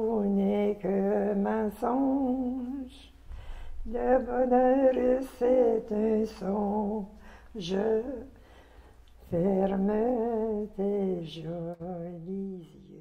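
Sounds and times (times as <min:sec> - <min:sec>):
woman singing unaccompanied: 0:00.0 - 0:03.2, 0:03.8 - 0:08.4, 0:09.2 - 0:13.0.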